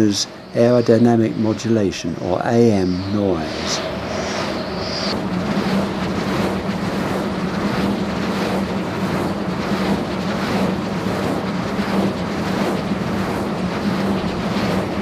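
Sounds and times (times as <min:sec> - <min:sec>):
steady low hum: 0:00.0 - 0:15.0
wind turbine blades swishing: 0:00.0 - 0:15.0.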